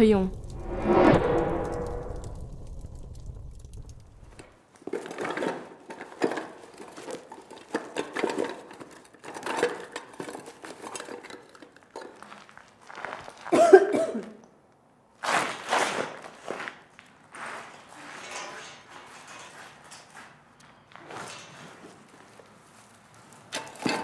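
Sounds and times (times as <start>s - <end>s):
people coughing and gasping: 13.5s - 14.4s.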